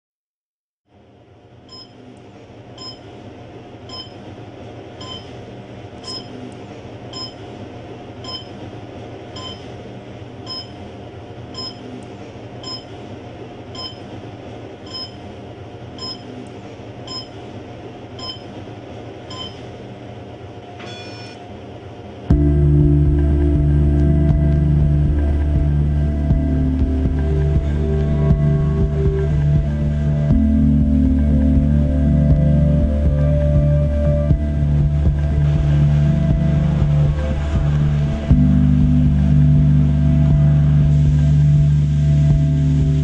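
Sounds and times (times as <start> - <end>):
hiss and hum of indoor space: 0.9 - 43.0
brief tone: 1.7 - 2.0, 2.8 - 3.0, 3.9 - 4.2, 5.0 - 5.3, 6.0 - 6.4, 7.1 - 7.4, 8.2 - 8.6, 9.4 - 9.7, 10.4 - 10.8, 11.5 - 11.9, 12.6 - 12.9, 13.7 - 14.1, 14.8 - 15.2, 16.0 - 16.3, 17.1 - 17.4, 18.2 - 18.5, 19.3 - 19.6, 20.8 - 21.5.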